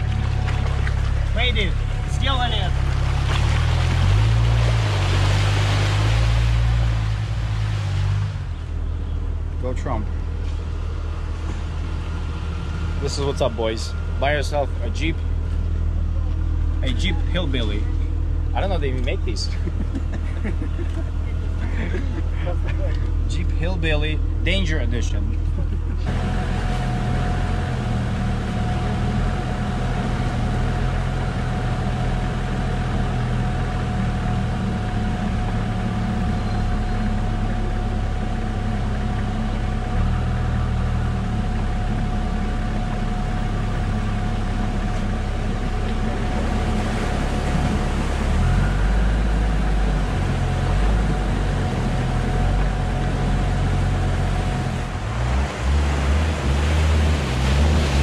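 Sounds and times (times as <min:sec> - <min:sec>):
diesel engine running at low revs: 0:00.0 - 0:58.0
steady whine: 0:00.0 - 0:58.0
rushing splashing water: 0:02.3 - 0:08.5, 0:43.4 - 0:58.0.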